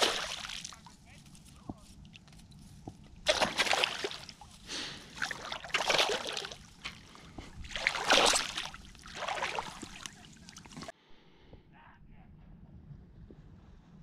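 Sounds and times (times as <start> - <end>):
fish splashing in water: 0.0 - 0.8, 3.3 - 10.9.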